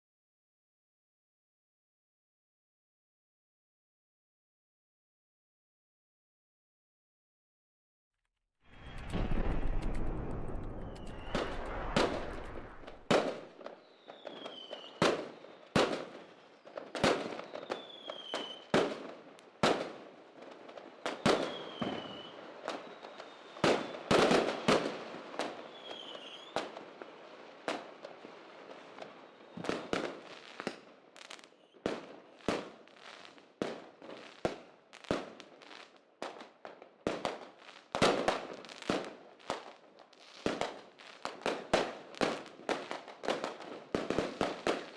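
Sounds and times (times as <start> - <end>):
falling whistles: 8.7 - 13.1, 13.8 - 15.6, 17.4 - 18.7, 21.3 - 24.1, 25.7 - 26.6
low rumble: 8.7 - 13.1
fireworks bangs and cracks: 8.7 - 44.9.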